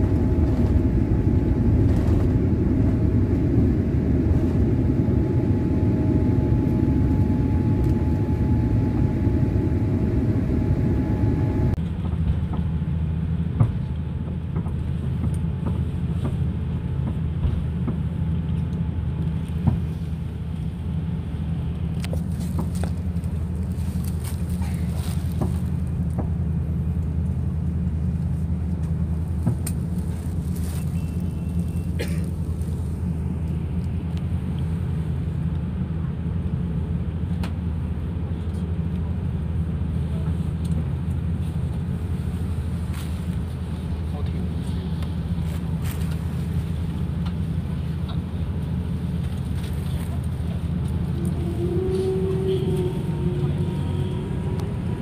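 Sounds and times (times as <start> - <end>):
airliner rolling rumble: 0.0 - 55.0
airliner taxiing hum: 0.0 - 55.0.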